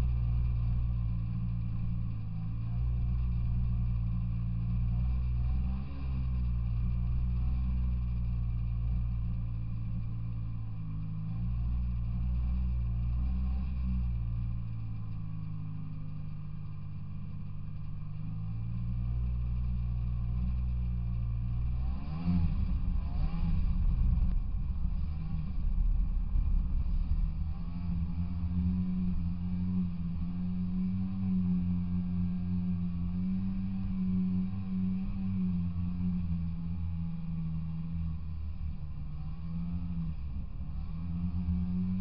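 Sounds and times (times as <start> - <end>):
snowmobile engine: 18.3 - 38.6.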